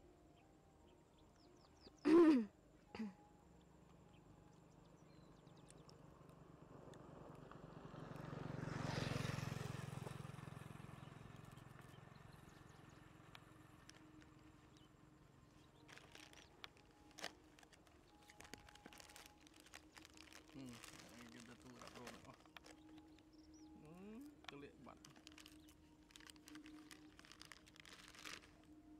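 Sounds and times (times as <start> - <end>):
vehicle passing by: 4.5 - 28.5
plastic snack bags crinkling: 13.8 - 14.9, 15.6 - 23.6, 24.3 - 28.8.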